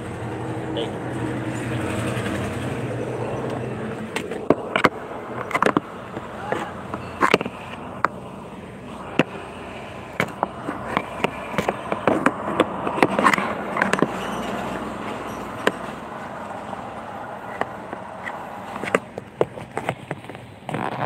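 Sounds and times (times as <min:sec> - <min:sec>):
phone being handled: 0:03.4 - 0:15.9, 0:17.4 - 0:21.0.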